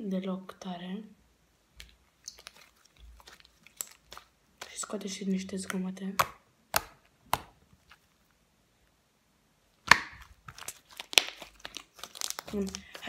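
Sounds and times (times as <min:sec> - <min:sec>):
slime popping and crackling: 0:01.8 - 0:08.0, 0:09.8 - 0:13.0.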